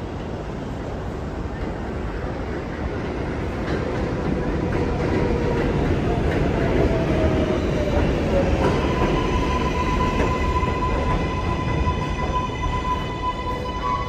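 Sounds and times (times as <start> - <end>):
train wheels rumbling on track: 0.0 - 14.0
steady high tone: 8.8 - 14.0.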